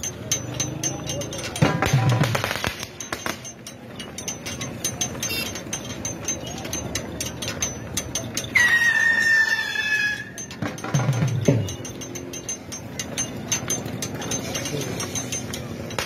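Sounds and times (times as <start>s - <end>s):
metal rig clanking and rattling: 0.0s - 16.0s.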